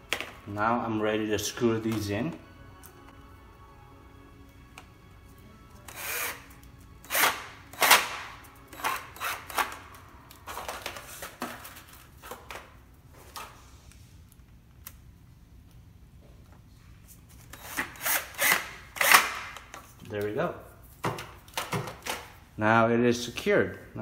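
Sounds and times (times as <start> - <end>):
cordless drill driving screws: 5.9 - 8.1, 8.7 - 9.7, 17.5 - 19.4.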